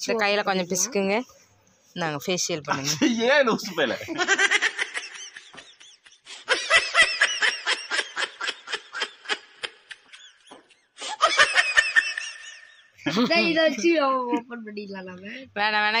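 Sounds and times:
high-pitched hearty laughter: 0:02.7 - 0:13.5.

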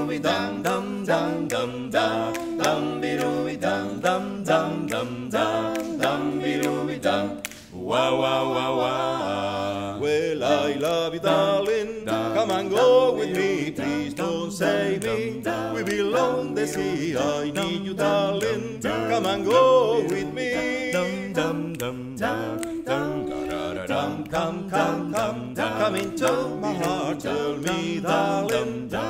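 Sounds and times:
male quartet singing a cappella: 0:00.0 - 0:29.0.

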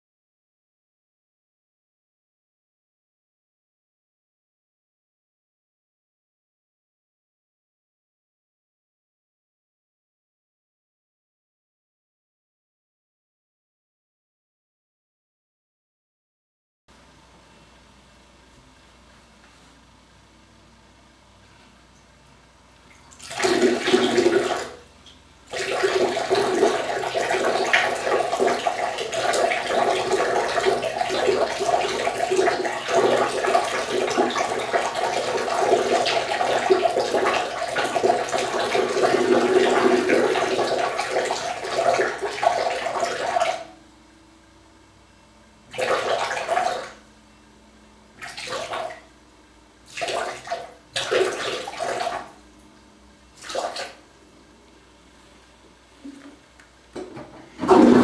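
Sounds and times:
urine splashing into toilet water: 0:22.9 - 0:24.8, 0:25.5 - 0:43.7, 0:49.9 - 0:52.4.

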